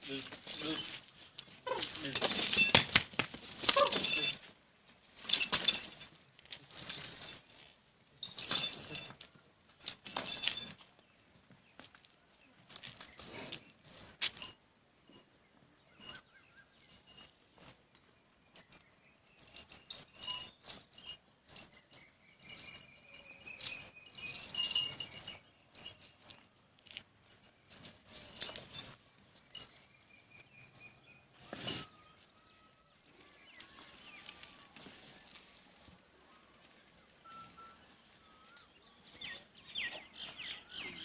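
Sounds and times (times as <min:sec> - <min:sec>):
metal chains rattling: 0:00.0 - 0:10.9, 0:12.7 - 0:32.0.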